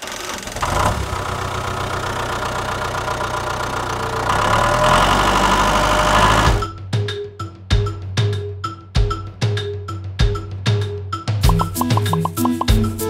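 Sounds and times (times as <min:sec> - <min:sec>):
tractor engine running: 0:00.0 - 0:06.6.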